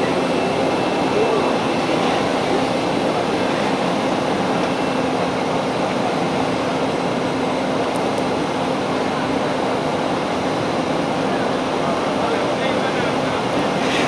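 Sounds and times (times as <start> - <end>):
murmur of voices: 0.0 - 14.0.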